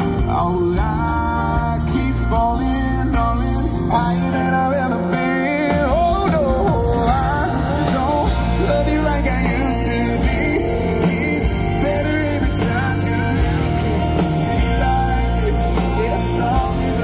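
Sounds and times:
live country-pop band: 0.0s - 17.0s
man singing: 0.0s - 17.0s.

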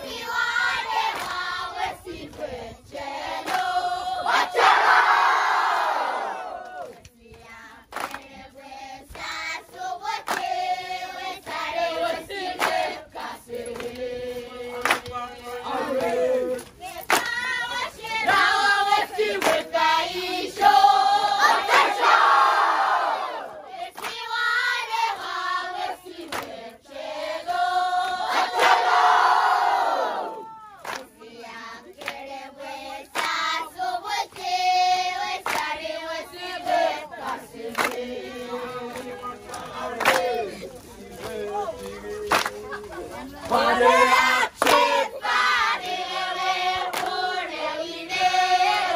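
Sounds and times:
group of voices singing: 0.0s - 48.9s
sharp clap: 7.9s - 8.3s, 10.2s - 10.6s, 12.6s - 12.9s, 14.8s - 15.2s, 16.0s - 17.4s, 19.4s - 19.7s, 26.3s - 26.6s, 30.3s - 31.2s, 33.1s - 33.4s, 35.4s - 35.7s, 37.7s - 38.0s, 38.9s - 40.4s, 41.2s - 42.7s, 44.6s - 44.9s, 46.8s - 47.2s.

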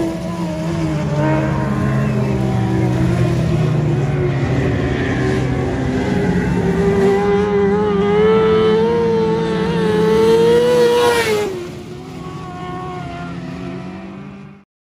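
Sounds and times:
race car engine whine passing: 0.0s - 14.6s.

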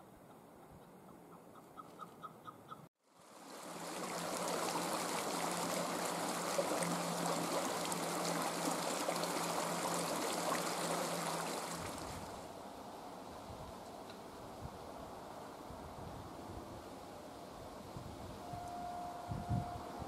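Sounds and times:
partridge calling: 1.3s - 2.8s
creek water flowing over rocks: 3.1s - 12.5s.

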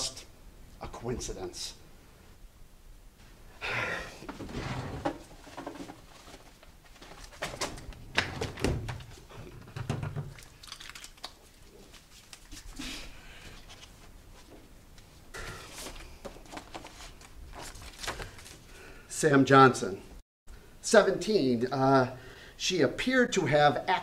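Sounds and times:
paper rustling and sliding: 15.6s - 18.6s.

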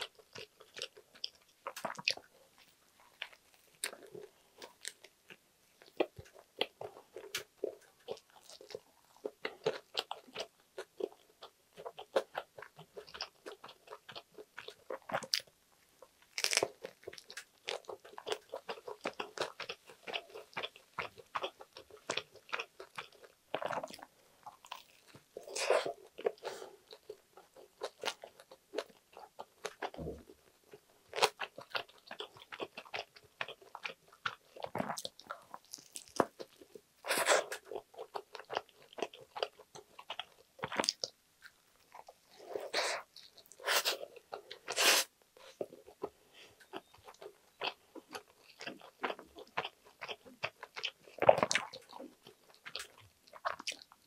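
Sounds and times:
crunchy sandwich chewing: 0.0s - 54.0s.

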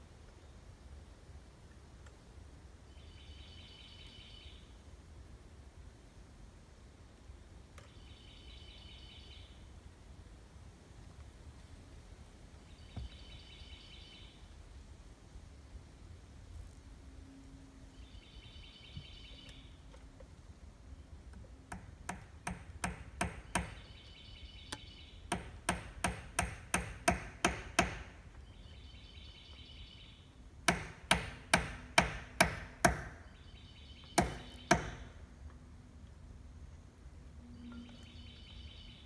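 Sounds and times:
hammer nailing wood: 21.7s - 23.8s, 25.3s - 28.2s, 30.6s - 33.2s, 34.2s - 35.2s.

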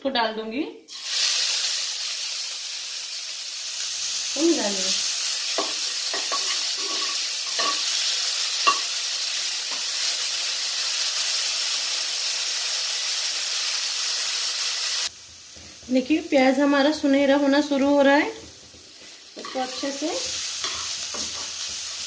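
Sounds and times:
onion sizzling in hot oil: 0.9s - 22.0s
spoon clinking against pan: 5.6s - 7.9s, 8.6s - 8.9s.

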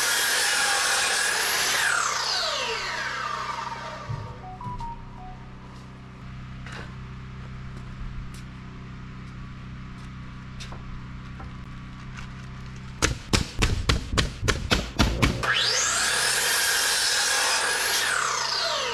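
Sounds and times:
steady low hum: 4.0s - 15.6s.

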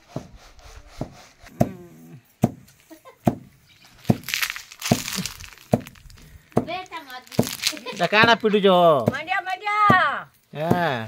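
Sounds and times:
stone thudding on plants: 2.4s - 9.3s
dry stalks rustling: 3.6s - 8.8s.

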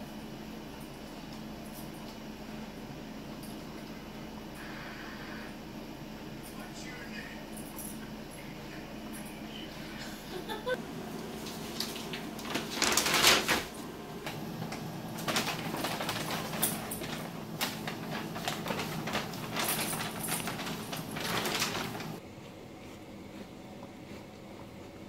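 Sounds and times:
paper bag crinkling: 11.3s - 22.2s.

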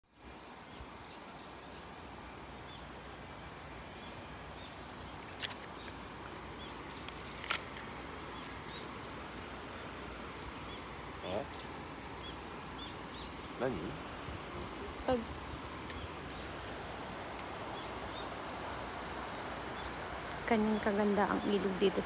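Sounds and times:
steady outdoor noise: 0.0s - 22.0s
bird chirping: 6.6s - 7.6s, 10.4s - 14.0s, 15.8s - 16.8s.

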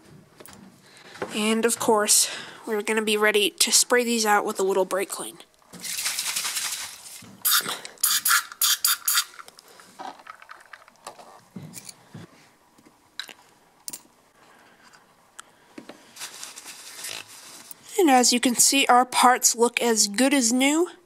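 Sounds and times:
aerosol spray hissing: 7.4s - 9.3s.

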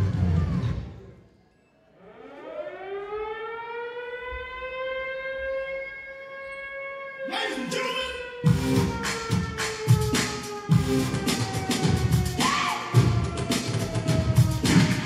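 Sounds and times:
air-raid siren wailing: 1.9s - 15.0s
dance beat: 8.4s - 15.0s.

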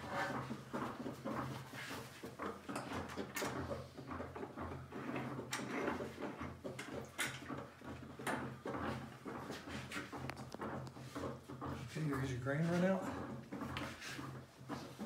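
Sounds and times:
wood scraping: 0.0s - 15.0s.

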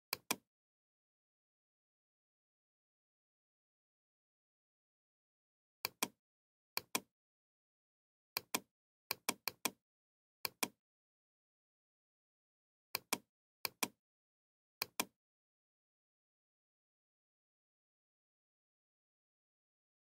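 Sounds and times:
computer mouse clicks: 0.1s - 0.4s, 5.8s - 6.2s, 6.8s - 7.1s, 8.4s - 9.8s, 10.4s - 10.8s, 13.0s - 14.0s, 14.8s - 15.1s.

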